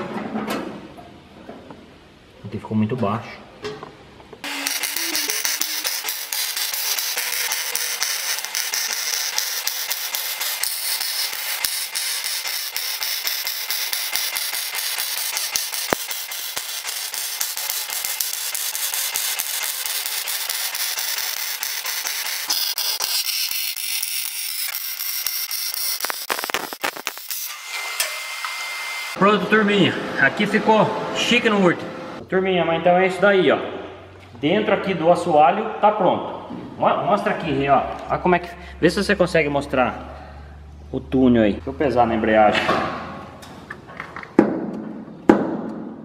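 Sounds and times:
welder arc crackling and sizzling: 4.4s - 29.2s.

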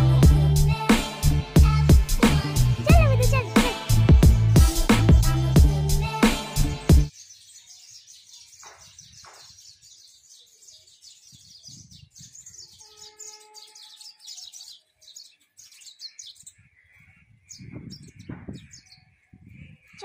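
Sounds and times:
small birds chirping: 7.0s - 20.0s.

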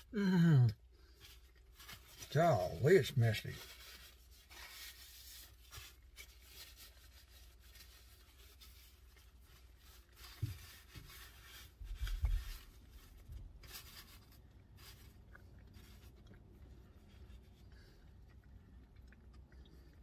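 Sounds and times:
paper napkin rustling: 1.3s - 16.2s.

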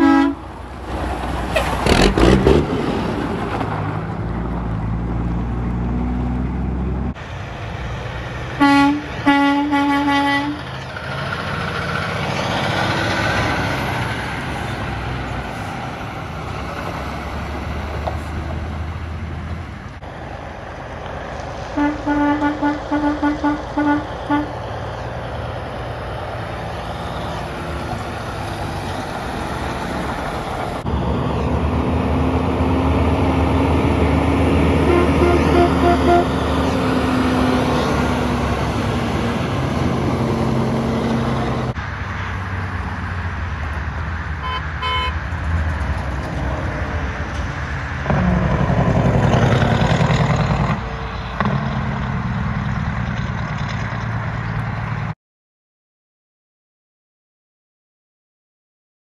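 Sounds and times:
truck horn short toots: 0.0s - 0.4s, 8.6s - 10.6s, 21.8s - 24.5s, 34.8s - 36.4s, 44.4s - 45.2s
trucks passing by: 0.0s - 55.2s.

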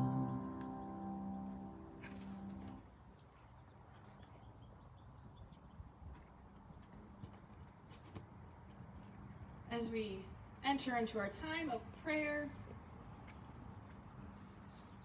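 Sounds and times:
music note: 0.0s - 2.8s
crickets trilling: 0.0s - 3.1s.

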